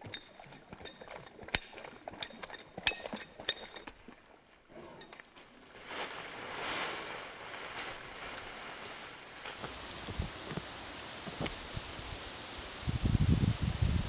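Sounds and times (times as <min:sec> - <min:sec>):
dry leaves rustling: 0:05.5 - 0:14.0.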